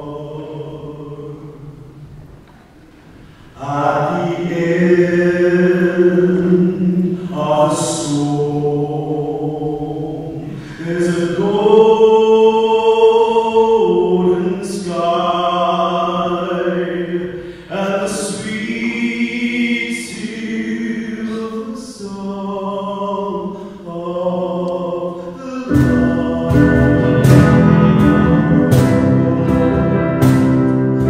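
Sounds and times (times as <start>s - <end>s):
voices singing together: 0.0s - 2.0s, 3.5s - 31.0s
man singing lead: 3.6s - 30.2s.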